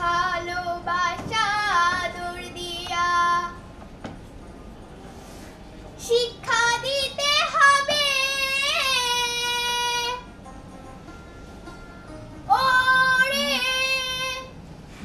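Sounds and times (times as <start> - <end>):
child singing: 0.0 - 3.6, 6.0 - 10.2, 12.5 - 14.5.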